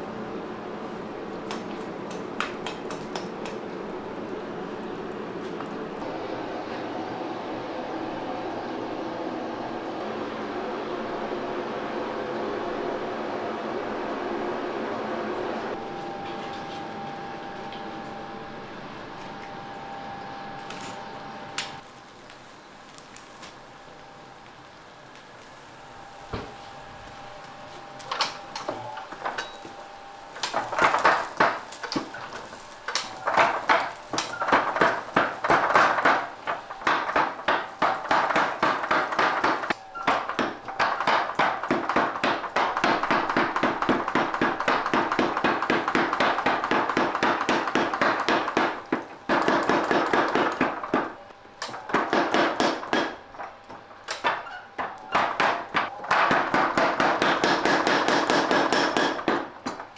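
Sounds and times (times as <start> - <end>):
power hammer pounding steel: 30.4 - 53.5, 54.1 - 59.8.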